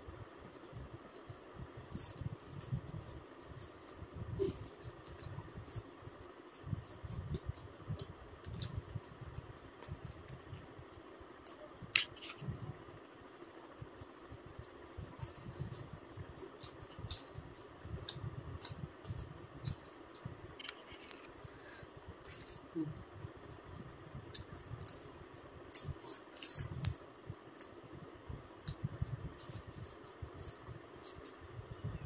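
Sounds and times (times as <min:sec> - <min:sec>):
chewing with mouth clicks: 0:01.9 - 0:12.1, 0:13.4 - 0:21.2, 0:28.6 - 0:31.4.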